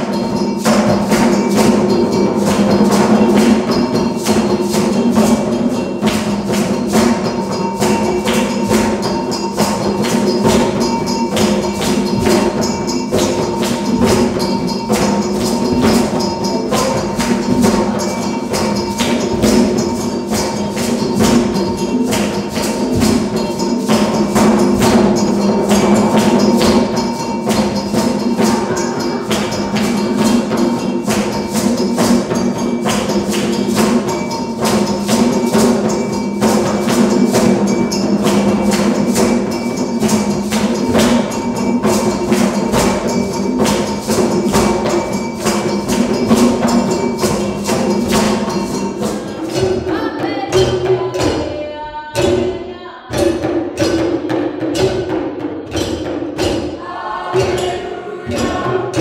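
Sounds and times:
hand drums playing fast rhythm: 0.0 - 59.0.

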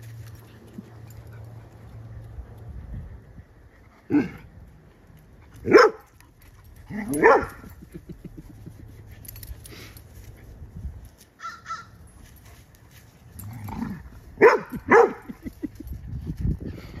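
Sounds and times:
dog barking: 5.7 - 6.0, 7.0 - 7.6, 14.4 - 15.3.

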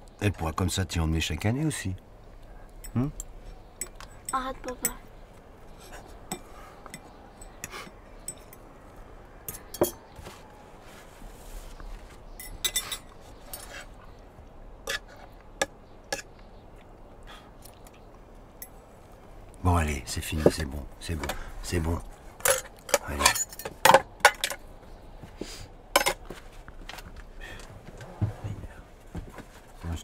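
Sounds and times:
glasses and tableware clinking: 6.3 - 8.7, 9.5 - 10.0, 12.4 - 13.8, 22.4 - 24.6.

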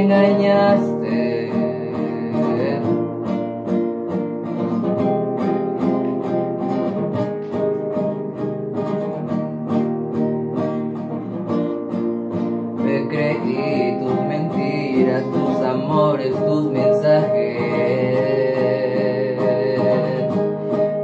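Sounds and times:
acoustic guitar strumming: 0.0 - 21.0.

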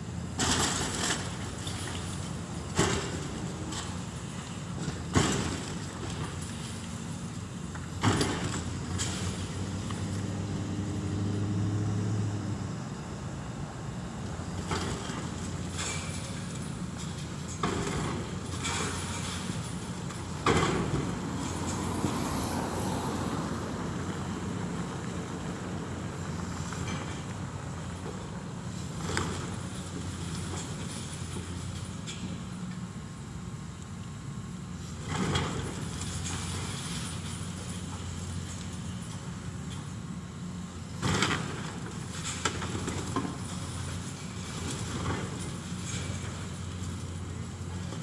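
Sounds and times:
crunching and scraping debris: 14.6 - 22.0, 41.0 - 48.0.

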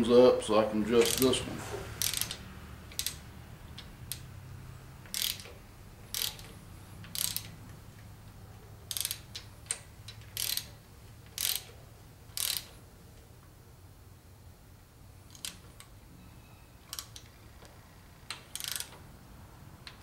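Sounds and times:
ratchet wrench clicking: 1.0 - 1.4, 2.0 - 4.3, 5.0 - 7.7, 8.9 - 12.8, 15.3 - 15.9, 16.8 - 19.0.

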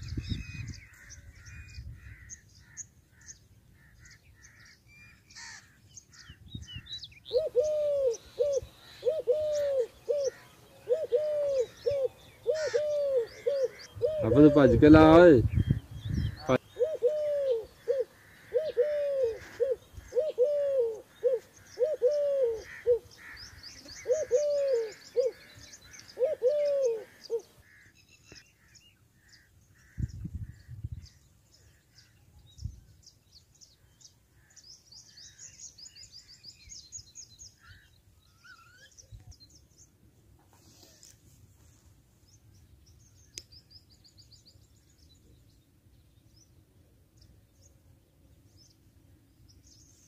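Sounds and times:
low hooting bird call: 0.0 - 15.2, 16.2 - 30.6
small birds chirping: 0.0 - 50.0.

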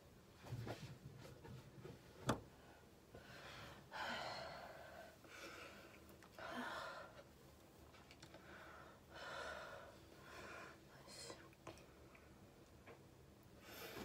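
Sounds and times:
woman breathing heavily: 2.8 - 7.4, 8.3 - 11.4, 13.6 - 14.0.

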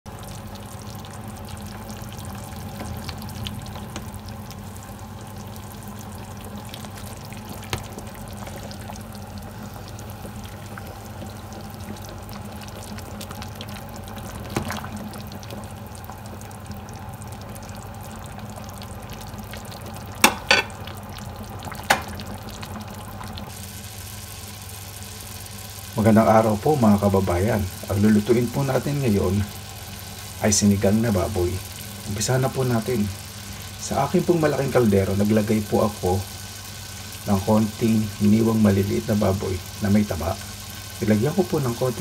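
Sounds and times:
pot simmering and bubbling: 0.1 - 42.0.

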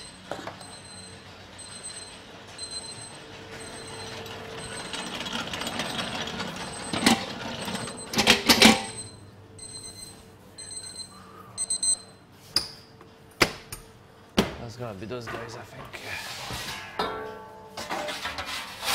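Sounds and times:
steady background hum: 0.0 - 18.9
kitchen clatter: 16.5 - 18.9.

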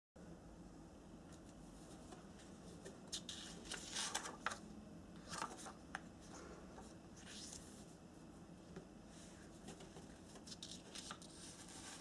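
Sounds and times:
paper rustling: 1.4 - 4.6, 5.2 - 5.8, 9.5 - 12.0.

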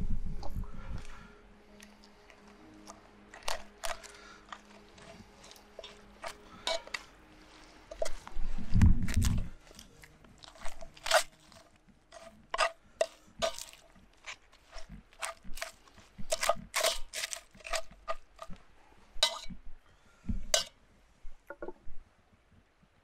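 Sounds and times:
crunching chips: 1.7 - 8.2, 9.0 - 18.6.

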